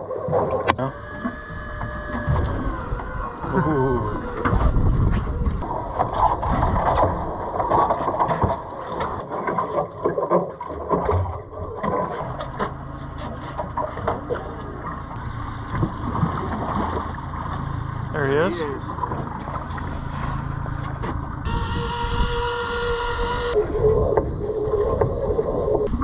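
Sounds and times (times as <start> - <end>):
water: 0.0 - 26.0
wind: 0.0 - 26.0.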